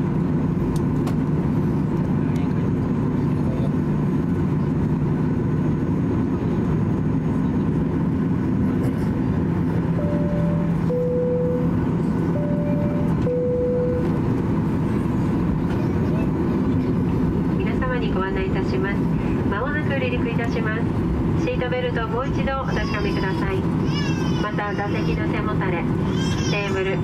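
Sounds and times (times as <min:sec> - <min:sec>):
engine and air conditioning drone: 0:00.0 - 0:27.0
two-tone cabin chime: 0:09.9 - 0:14.2.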